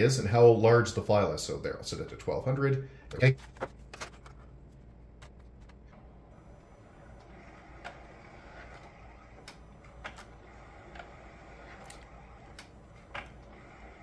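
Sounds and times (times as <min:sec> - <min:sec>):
photo scanner feeding prints: 0:05.6 - 0:14.0.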